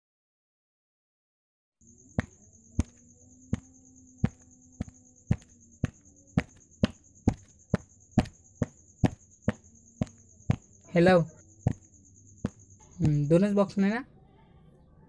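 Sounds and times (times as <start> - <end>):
sharp evenly spaced clicks: 2.1 - 13.4.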